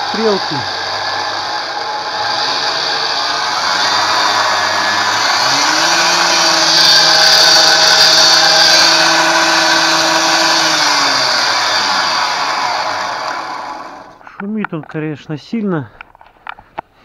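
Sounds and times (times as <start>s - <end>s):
electric motor whining: 0.0s - 14.2s.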